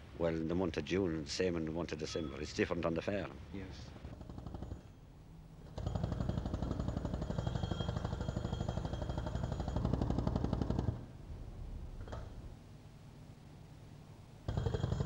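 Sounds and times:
jackhammer hammering concrete: 4.1s - 4.9s, 5.6s - 11.0s, 14.5s - 15.0s.

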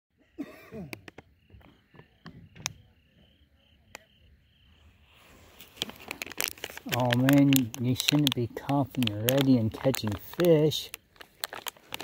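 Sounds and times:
crickets chirping: 0.2s - 12.0s
plastic snack bag crinkling: 5.4s - 12.0s.

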